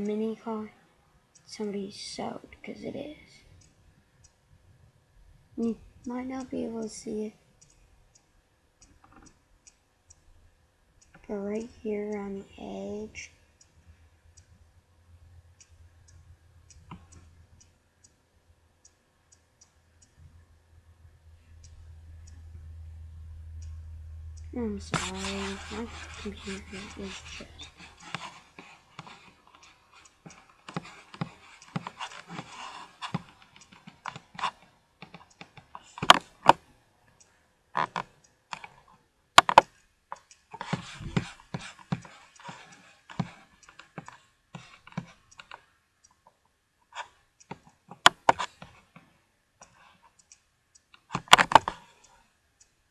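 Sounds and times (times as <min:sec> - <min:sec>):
mouse clicking: 0:01.3 - 0:01.7, 0:03.2 - 0:04.4, 0:05.6 - 0:10.3, 0:11.0 - 0:14.6, 0:15.6 - 0:18.2, 0:23.6 - 0:46.4, 0:47.0 - 0:52.8.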